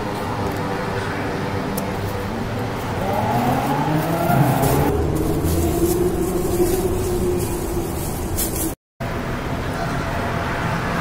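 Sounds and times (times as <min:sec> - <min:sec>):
traffic noise: 0:00.0 - 0:11.0
vehicle engine revving past: 0:02.9 - 0:08.0.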